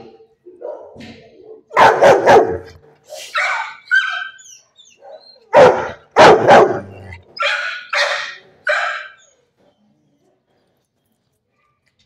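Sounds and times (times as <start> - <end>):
dog barking and yipping: 0.6 - 9.4.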